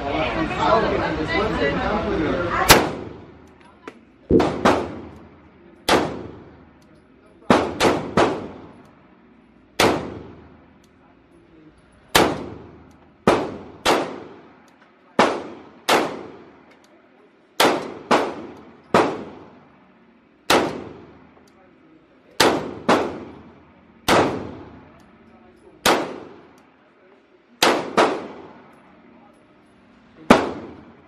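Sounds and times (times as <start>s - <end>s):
pistol shots echoing: 2.7s - 3.5s, 4.3s - 6.7s, 7.5s - 8.9s, 9.8s - 10.6s, 12.1s - 16.7s, 17.6s - 19.6s, 20.5s - 21.3s, 22.4s - 25.1s, 25.8s - 26.7s, 27.6s - 28.8s, 30.3s - 31.0s.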